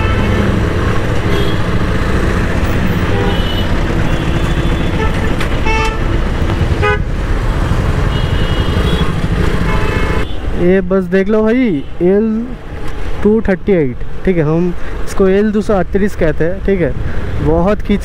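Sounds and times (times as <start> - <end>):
vehicle horn toots: 0.0 - 0.6, 1.2 - 1.8, 2.9 - 6.2, 6.8 - 7.1, 8.0 - 10.4
motorcycle engine and road rumble: 0.0 - 18.0.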